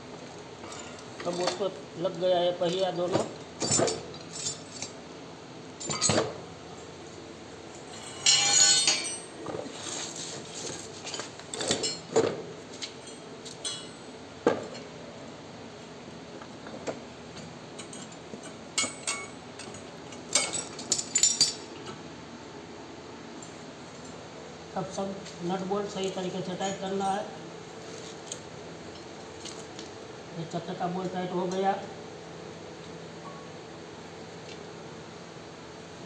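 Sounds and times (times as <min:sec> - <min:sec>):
ringing metal clatter: 0:07.9 - 0:09.3
metal parts clinking and knocking: 0:08.0 - 0:09.3, 0:18.8 - 0:21.7.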